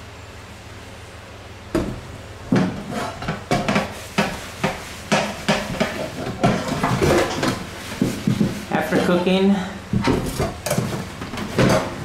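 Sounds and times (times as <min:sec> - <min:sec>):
dishes and cutlery clattering: 0:02.6 - 0:07.6.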